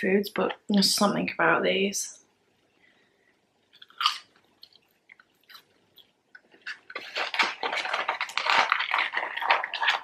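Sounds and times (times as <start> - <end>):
chewing fries: 3.7 - 10.0
fingers rustling cardboard carton: 6.7 - 10.0.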